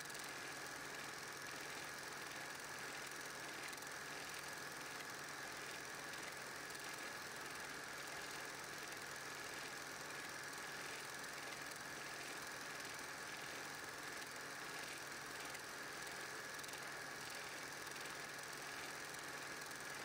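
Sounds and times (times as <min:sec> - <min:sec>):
film projector whirring: 0:00.0 - 0:20.0.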